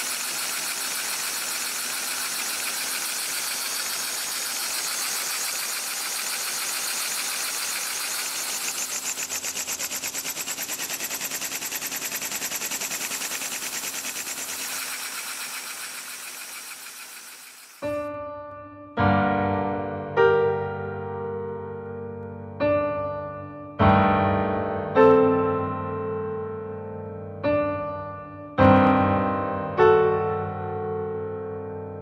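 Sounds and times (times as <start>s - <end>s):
model steam engine chuffing: 0.0s - 17.8s.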